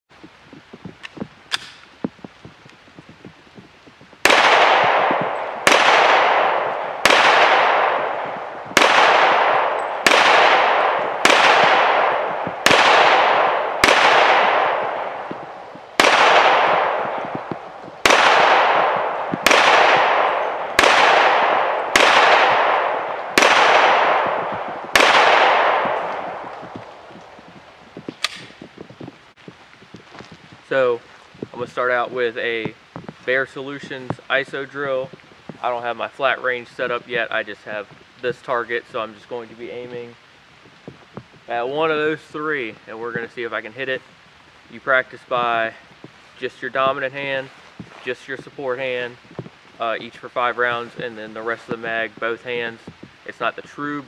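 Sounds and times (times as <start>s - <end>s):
handgun shots with echo: 1.5s - 1.8s, 4.3s - 15.3s, 16.0s - 26.9s, 28.2s - 28.6s.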